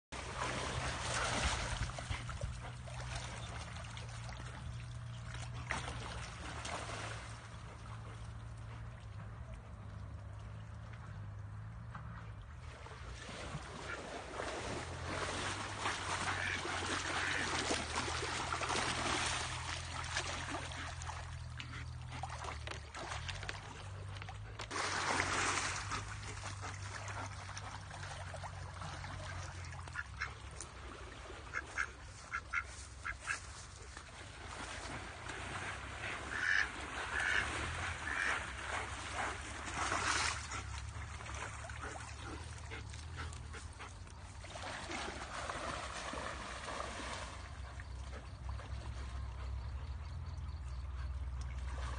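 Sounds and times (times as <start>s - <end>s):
flowing stream: 0.0s - 51.9s
ducks quacking: 16.2s - 18.0s, 31.4s - 33.6s, 36.0s - 38.6s.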